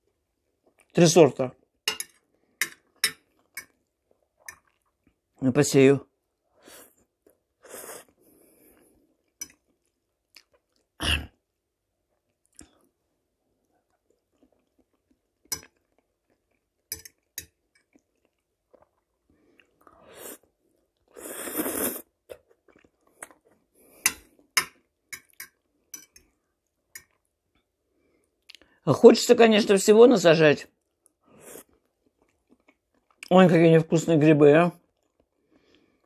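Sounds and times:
wet chewing and mouth noises: 2.2 - 5.4, 7.0 - 11.0, 12.0 - 28.7, 30.8 - 33.3, 34.8 - 36.0.

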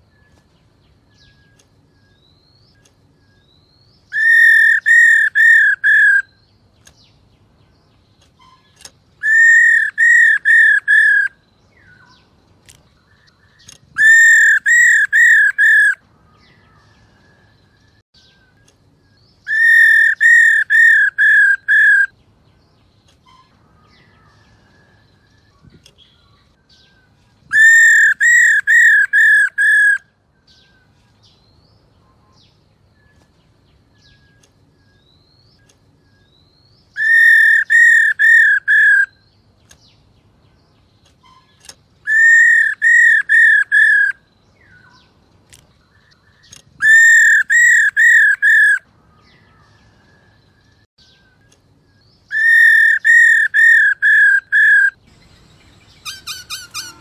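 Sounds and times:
bird call of quick arching notes: 52.3 - 57.0.

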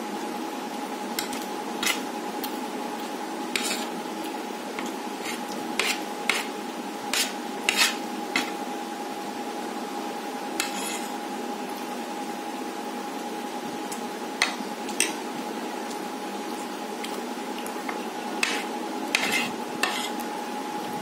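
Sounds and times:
spoon scraping ceramic plate: 3.6 - 3.9, 7.2 - 8.5, 10.6 - 11.1, 18.4 - 20.2.

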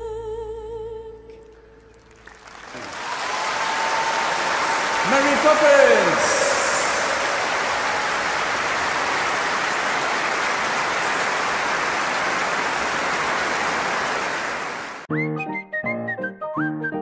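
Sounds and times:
audience applauding: 1.9 - 15.1.

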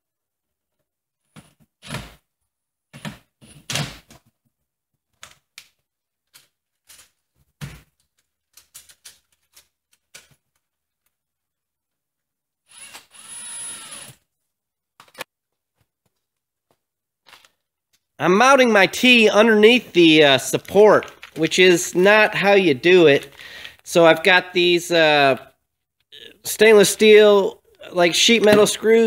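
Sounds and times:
cordless drill running: 12.7 - 14.2.

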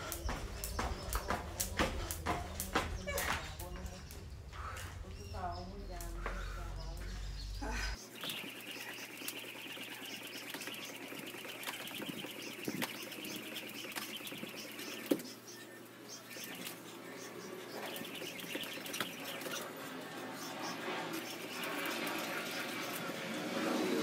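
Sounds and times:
jump rope ticking on tiled floor: 0.0 - 4.9, 8.2 - 15.2.

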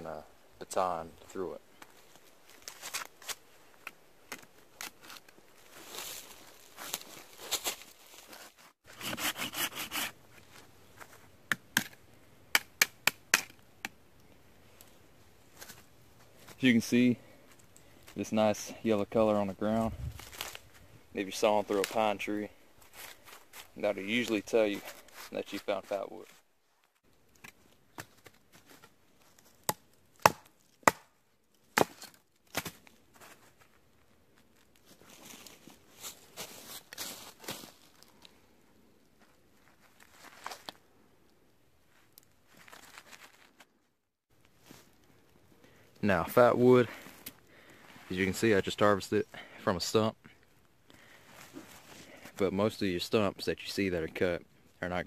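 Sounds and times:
hand saw cutting wood: 8.9 - 10.2.

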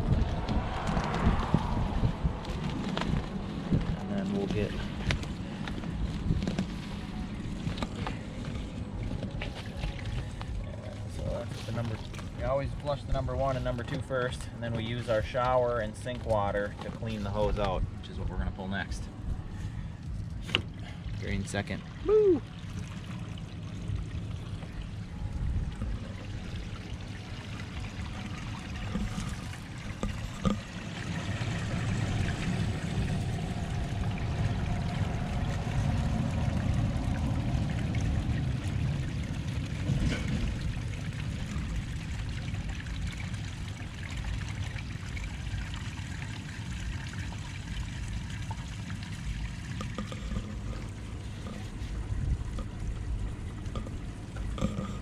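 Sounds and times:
water draining through hose: 20.4 - 55.0.

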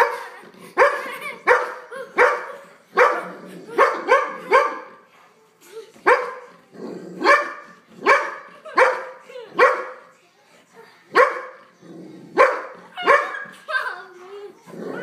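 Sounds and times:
dog barking: 0.8 - 5.0, 6.1 - 6.5, 7.2 - 10.0, 11.2 - 11.6, 12.4 - 13.5.

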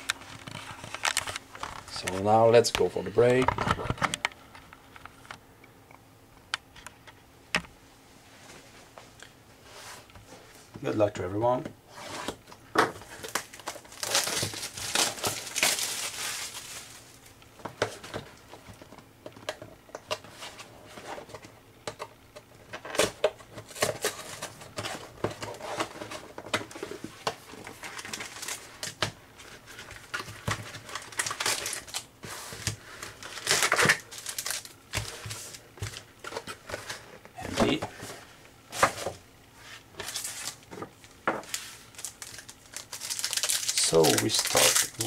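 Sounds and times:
cellophane crinkling: 13.0 - 18.1, 22.8 - 38.2, 39.8 - 45.0.

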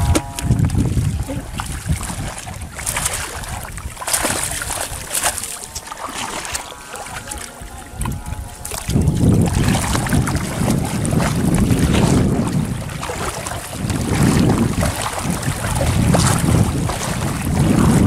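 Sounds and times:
heavy low rumble: 0.0 - 2.8, 7.1 - 18.0
fish churning water: 0.0 - 18.0
water sloshing and splashing: 0.0 - 18.0.

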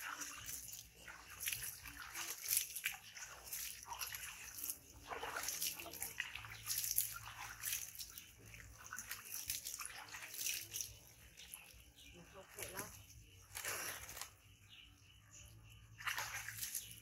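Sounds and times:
water splashing and dripping: 0.0 - 17.0.

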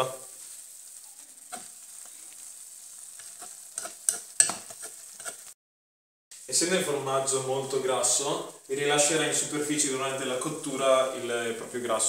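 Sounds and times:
cheese sizzling in frying pan: 0.0 - 5.6, 6.4 - 12.0
metal spatula scraping pan: 1.2 - 5.6.

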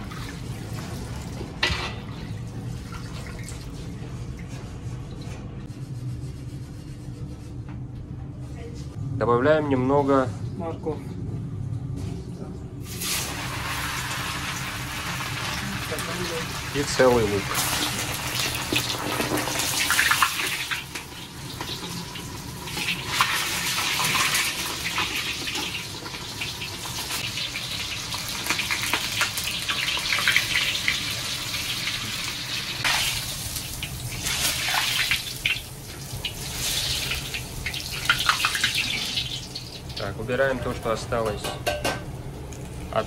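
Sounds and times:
vegetables sizzling in oil: 12.9 - 40.0.

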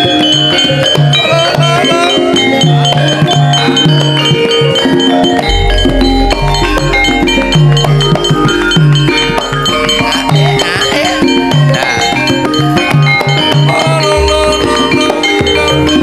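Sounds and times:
hand drums: 0.0 - 16.0
ringing tuned metal percussion: 0.0 - 16.0
deep bass tone: 5.5 - 11.6.

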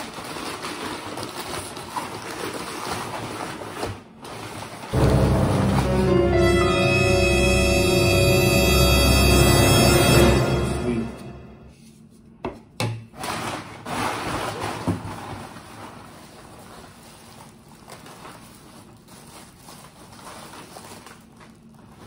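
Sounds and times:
cardboard and plastic rustling: 0.0 - 5.0, 13.1 - 22.0.

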